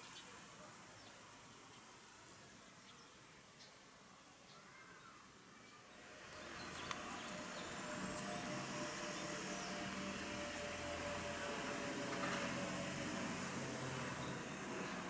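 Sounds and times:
jet airliner passing overhead: 6.0 - 15.0.

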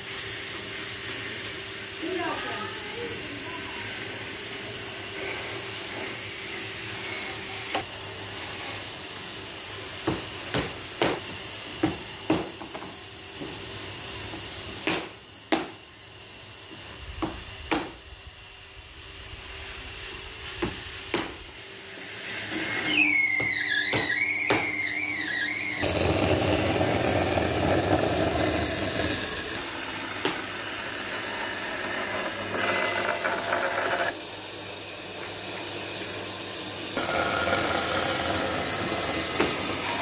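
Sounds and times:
steady hiss: 13.4 - 21.8.

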